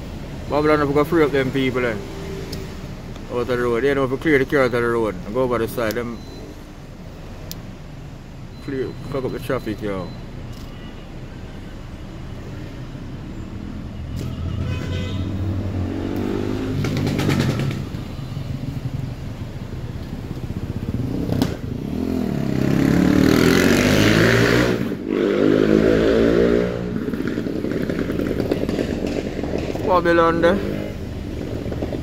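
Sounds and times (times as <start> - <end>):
vehicles accelerating past: 0.0 - 5.6, 12.4 - 32.0.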